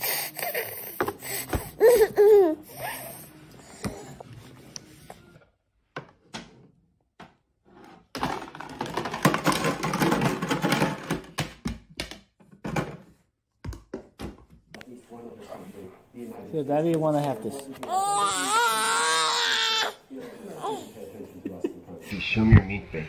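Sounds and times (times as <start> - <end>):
baby vocalizing: 0.0 - 4.2, 17.6 - 21.0
plastic toy dishes clattering: 8.1 - 13.0.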